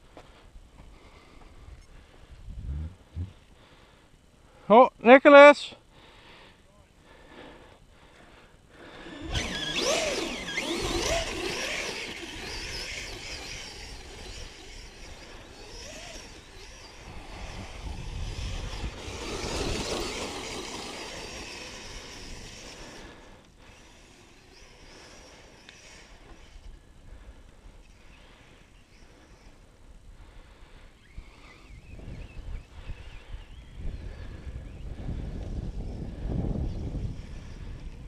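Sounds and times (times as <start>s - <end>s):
small electric motors whining: 8.8s - 29.7s, 30.8s - 38.0s.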